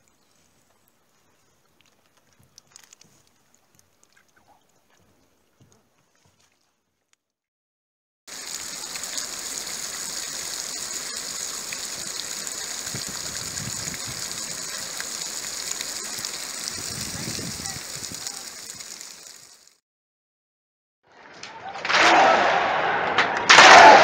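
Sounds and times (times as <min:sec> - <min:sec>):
fountain jet splashing into pool: 0:08.3 - 0:19.8.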